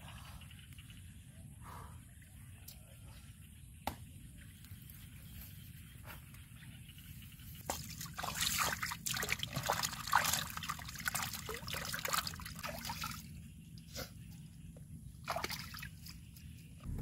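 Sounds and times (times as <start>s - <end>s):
splashing and sloshing in water: 7.6s - 13.3s, 15.2s - 16.3s.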